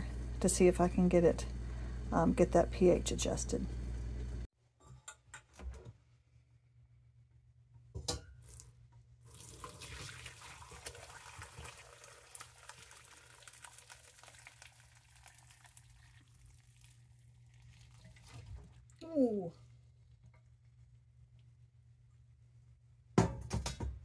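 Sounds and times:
liquid pouring through strainer: 9.3 - 19.0.

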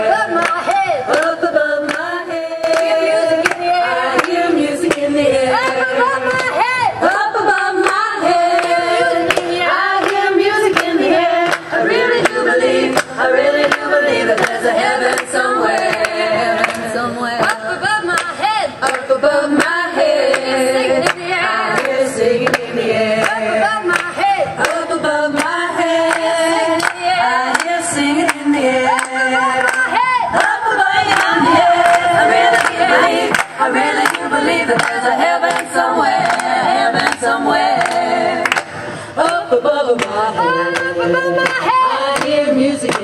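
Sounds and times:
group of voices singing: 0.0 - 43.0.

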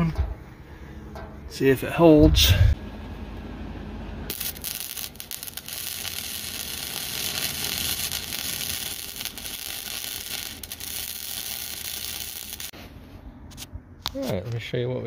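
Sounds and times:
arc welding hiss: 4.3 - 12.8.

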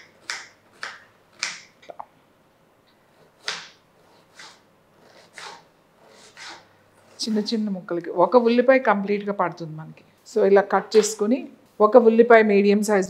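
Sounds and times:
knife chopping on wooden board: 0.0 - 1.7, 3.2 - 4.6, 5.2 - 5.6.

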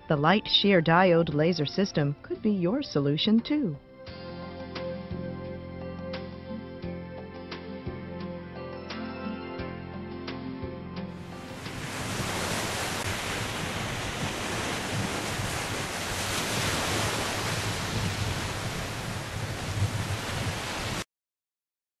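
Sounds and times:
ocean surf on beach: 11.2 - 21.0
wind buffeting microphone: 11.4 - 21.0.

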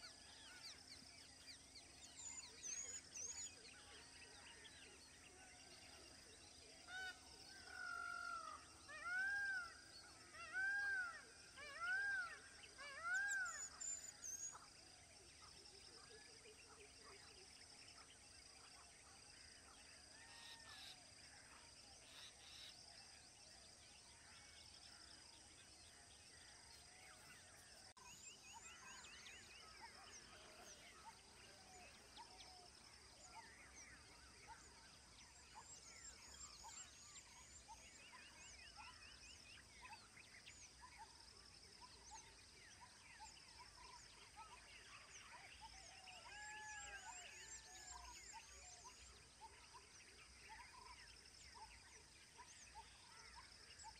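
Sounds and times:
birds chirping and trilling: 22.0 - 53.9.

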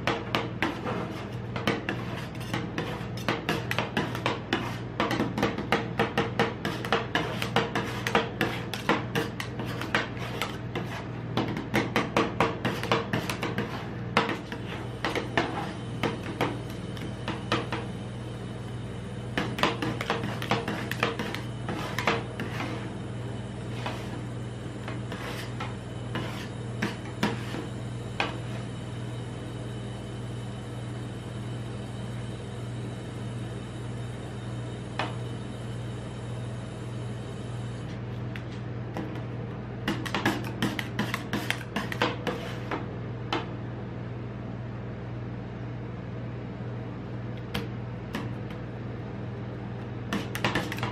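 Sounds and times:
metal spatulas chopping and scraping: 0.0 - 17.7, 19.4 - 22.8, 39.9 - 42.8, 50.1 - 50.9
steady low hum: 0.0 - 50.9.

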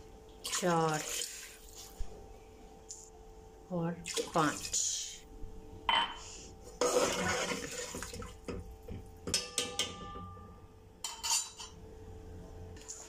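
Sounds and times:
liquid sloshing in pot: 6.8 - 9.1
spoon clinking against pot: 9.2 - 11.8.

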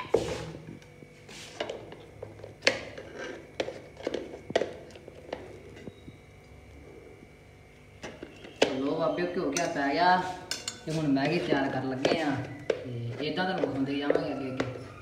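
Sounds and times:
spoon knocking and scraping metal: 10.5 - 14.9.

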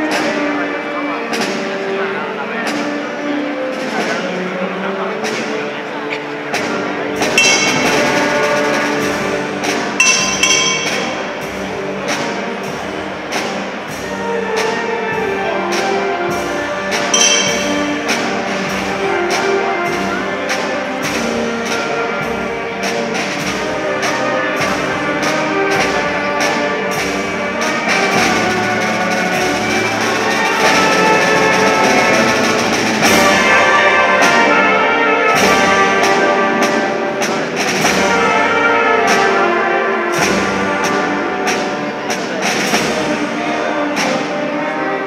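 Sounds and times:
brass band march: 0.0 - 45.0
steady drum beat: 7.2 - 14.2, 17.2 - 19.3.

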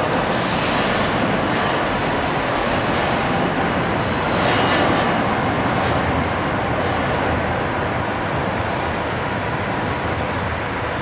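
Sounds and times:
city traffic rumble: 0.0 - 11.0.

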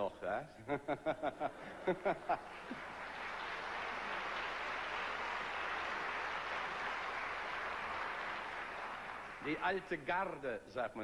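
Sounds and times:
audience applauding: 1.6 - 10.1.

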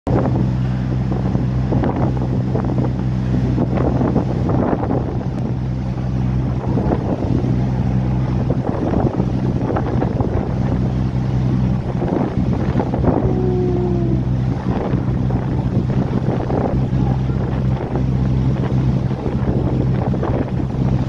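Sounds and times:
boat engine running: 0.1 - 21.0
water splashing along hull: 0.1 - 21.0
wind buffeting microphone: 0.1 - 21.0.

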